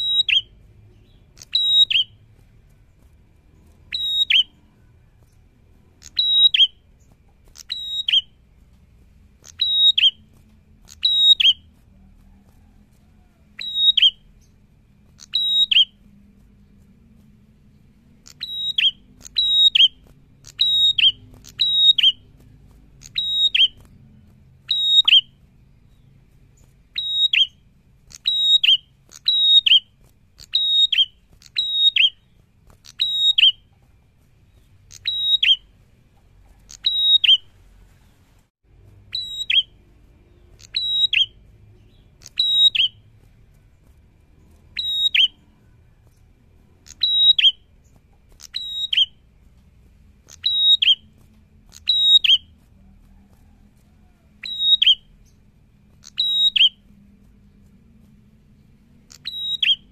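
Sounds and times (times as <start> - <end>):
bird calling with high whistles: 0.0 - 2.2, 3.6 - 4.9, 6.0 - 8.4, 9.4 - 11.7, 12.3 - 14.6, 15.2 - 16.0, 18.2 - 22.3, 23.0 - 23.9, 24.6 - 33.7, 34.5 - 35.7, 36.5 - 37.5, 39.1 - 43.1, 44.4 - 45.7, 46.8 - 49.2, 50.2 - 51.1, 51.7 - 52.6, 54.4 - 55.4, 56.0 - 56.9, 59.1 - 59.9.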